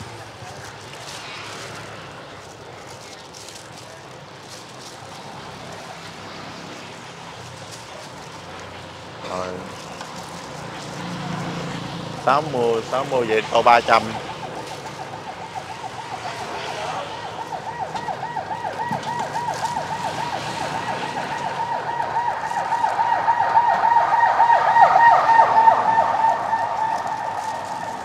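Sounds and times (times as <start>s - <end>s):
emergency siren yelping: 10.2s - 28.0s.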